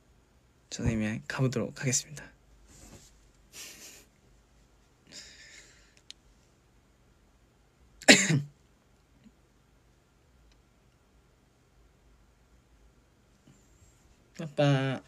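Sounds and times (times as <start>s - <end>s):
man coughing: 8.0s - 8.5s.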